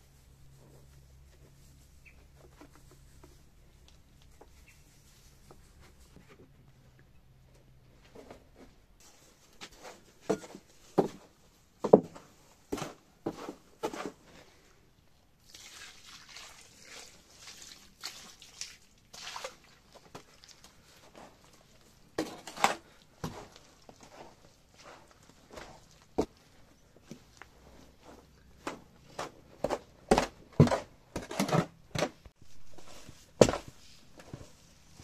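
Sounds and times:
water poured and splashing: 0:15.4 - 0:20.7
knocks and scrapes in a tub: 0:27.1 - 0:34.6.

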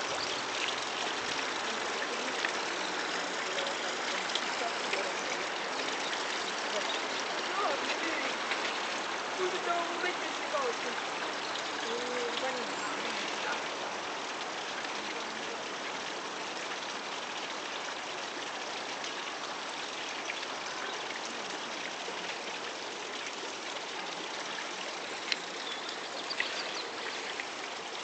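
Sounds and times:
running water hissing: 0:00.0 - 0:28.0
faint clicks: 0:25.2 - 0:26.7.

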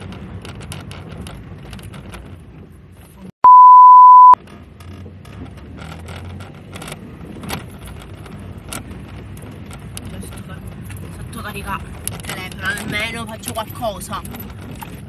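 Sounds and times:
car road rumble: 0:00.0 - 0:15.0
censor beep: 0:03.4 - 0:04.4.

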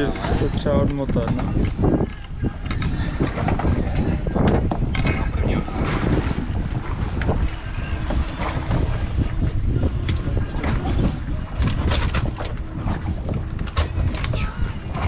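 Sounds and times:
steady low rumble: 0:00.0 - 0:15.0
wind buffeting microphone: 0:00.0 - 0:15.0.

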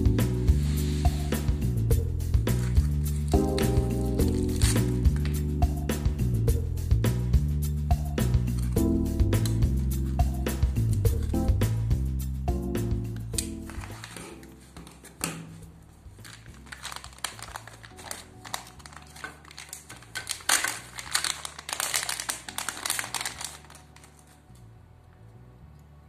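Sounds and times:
plastic bags crinkling: 0:02.6 - 0:05.4, 0:13.6 - 0:15.2, 0:16.1 - 0:24.4.

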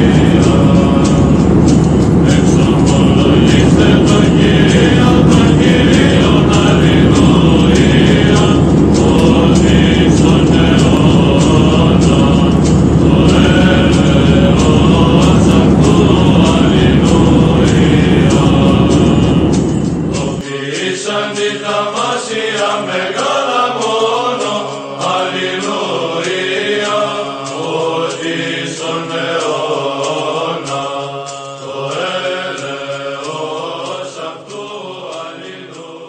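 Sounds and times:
loud low rumble: 0:00.0 - 0:20.6
held drone note: 0:00.0 - 0:36.0
slow vocal chant: 0:00.0 - 0:36.0.

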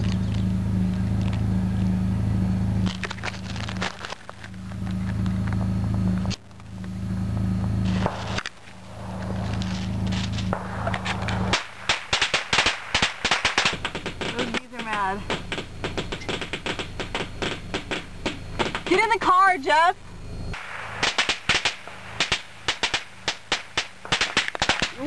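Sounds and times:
low engine hum: 0:00.0 - 0:25.0
firecrackers going off: 0:02.8 - 0:19.6, 0:20.5 - 0:25.0
sharp pops: 0:07.6 - 0:19.3, 0:20.5 - 0:25.0.

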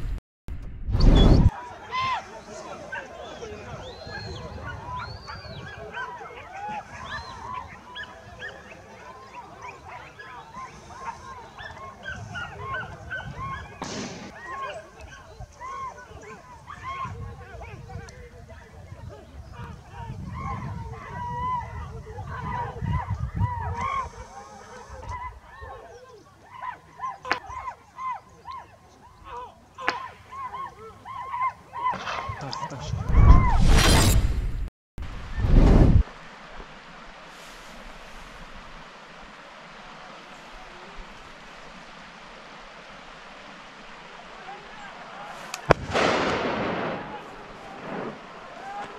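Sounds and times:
dogs baying and yelping: 0:02.8 - 0:32.6
gunshots: 0:13.8 - 0:14.4, 0:45.7 - 0:48.2.

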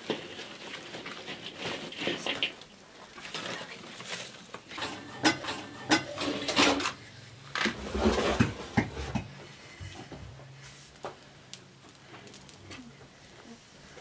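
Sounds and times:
match striking: 0:10.9 - 0:12.8.

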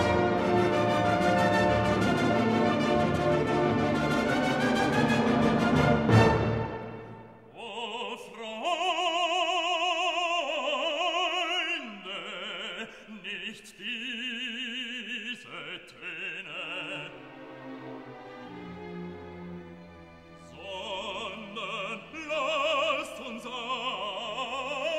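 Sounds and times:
orchestral chord: 0:00.0 - 0:07.4
operatic voice singing: 0:07.5 - 0:17.5, 0:20.4 - 0:24.9.

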